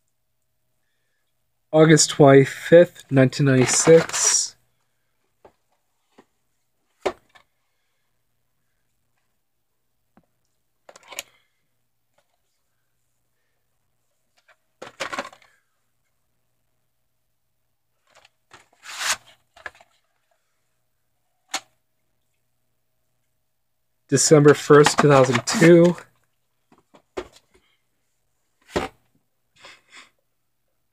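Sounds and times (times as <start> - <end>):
plastic cassette cases clacking: 3.6 - 4.4, 10.8 - 11.4, 14.4 - 15.6, 21.5 - 21.7, 24.5 - 26.0.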